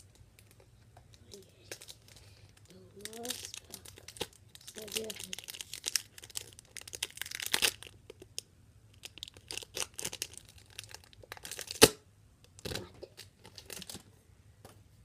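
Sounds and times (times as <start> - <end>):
foil wrapper crinkling: 1.3 - 11.9, 12.6 - 14.0.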